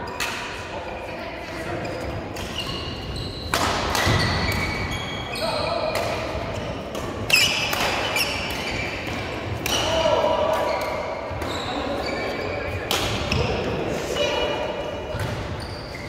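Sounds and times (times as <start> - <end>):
shoes squeaking on court: 1.7 - 5.9, 7.3 - 9.4, 10.6 - 12.8, 15.0 - 16.0
racket striking shuttlecock: 5.9 - 9.9.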